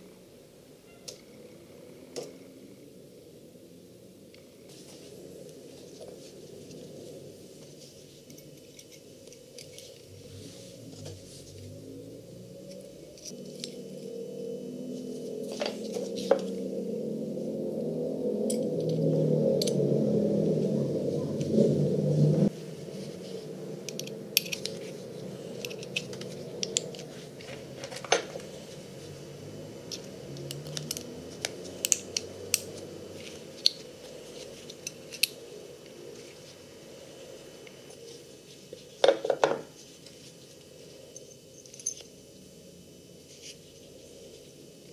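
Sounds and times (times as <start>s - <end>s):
low steady hum: 0.0s - 44.9s
small metal parts clicking: 23.9s - 24.9s.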